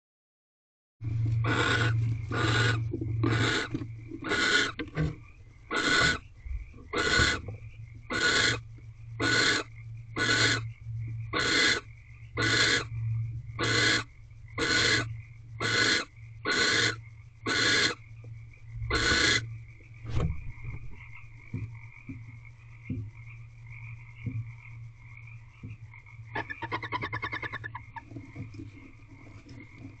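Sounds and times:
low electrical hum: 1.0 - 30.0
fast-pulsed chittering call: 1.4 - 4.8, 5.6 - 6.3, 6.9 - 7.5, 8.1 - 18.1, 18.7 - 19.7, 26.3 - 28.1
owl hissing calls: 1.4 - 4.8, 5.7 - 6.2, 6.9 - 7.5, 8.1 - 8.6, 9.2 - 10.7, 11.3 - 13.0, 13.6 - 18.0, 18.9 - 19.5, 26.4 - 28.0.

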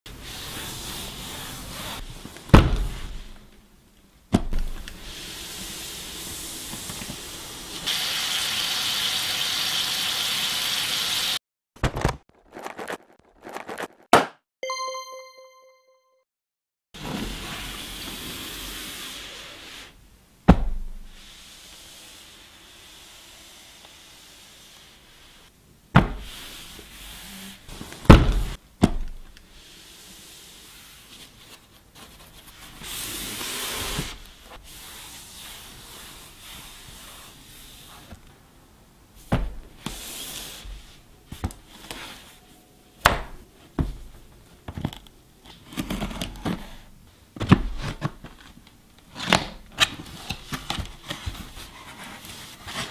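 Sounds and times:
cardboard sliding: 11.9 - 14.1.

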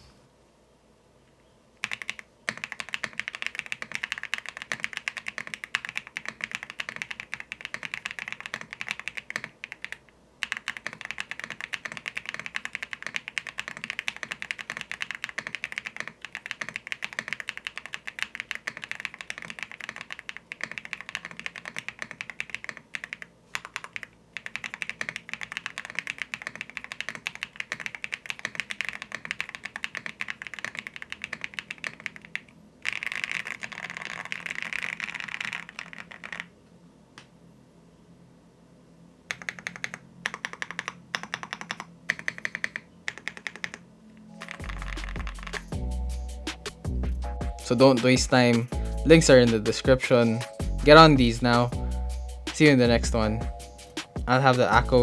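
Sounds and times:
fast mechanical keyboard typing: 1.8 - 36.5, 39.3 - 45.8.

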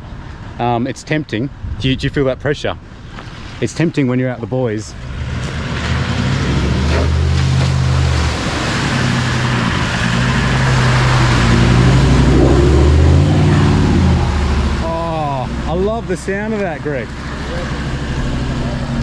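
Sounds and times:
engine running under load: 5.0 - 19.0.

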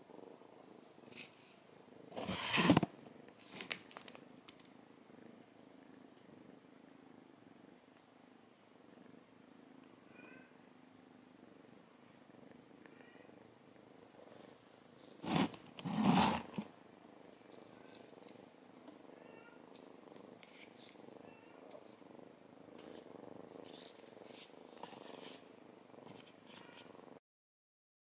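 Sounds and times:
kitten purring: 0.0 - 27.2.

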